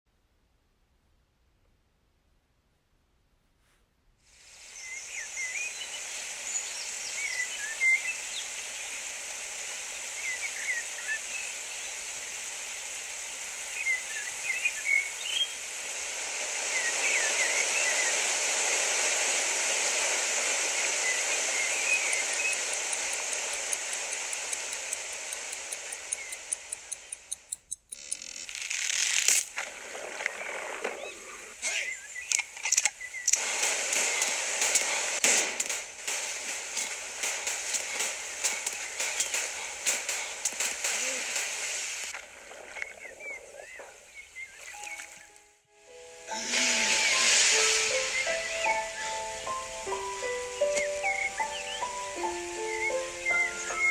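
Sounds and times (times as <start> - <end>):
creek water rushing: 4.4 - 26.9, 33.4 - 45.4, 46.0 - 53.9
small birds chirping: 4.4 - 28.2, 29.9 - 35.2, 35.8 - 45.5, 46.3 - 53.9
watch ticking rapidly: 22.1 - 28.9.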